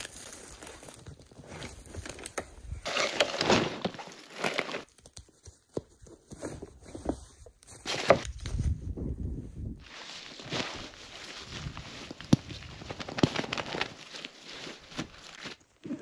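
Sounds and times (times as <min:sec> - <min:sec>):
bags rustling: 0:00.0 - 0:04.9.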